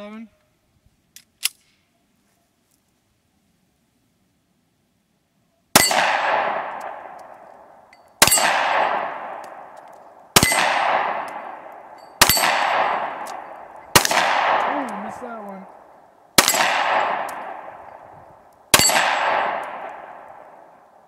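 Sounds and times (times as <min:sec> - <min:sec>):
pistol shots: 0:05.7 - 0:21.0.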